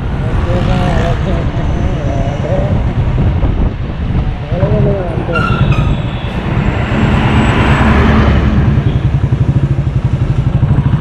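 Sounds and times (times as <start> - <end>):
road noise: 0.0 - 11.0
motorcycle engine running: 7.0 - 11.0.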